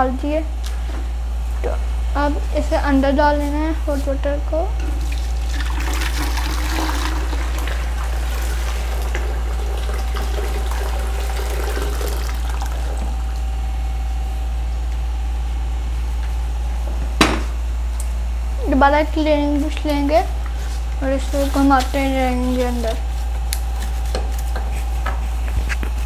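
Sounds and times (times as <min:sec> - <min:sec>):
steady low hum: 0:00.0 - 0:26.0
water pouring into tank: 0:05.0 - 0:13.4.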